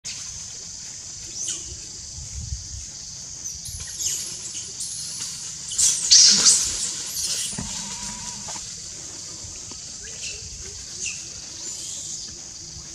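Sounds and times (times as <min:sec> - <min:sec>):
high-pitched drone: 0:07.5 - 0:08.6.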